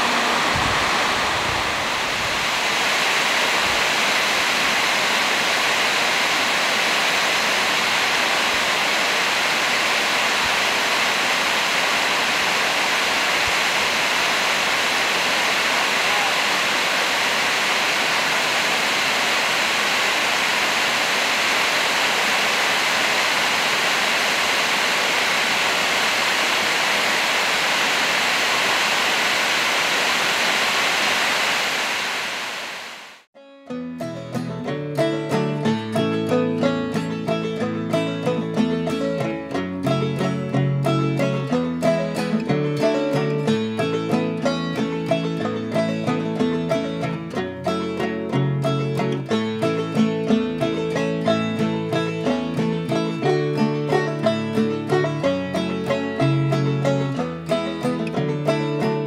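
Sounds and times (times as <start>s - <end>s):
stream rushing over boulders: 0.0s - 33.3s.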